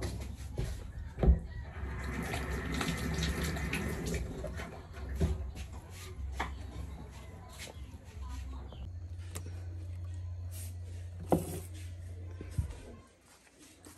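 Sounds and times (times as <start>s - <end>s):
faucet water running into sink: 1.8s - 5.3s.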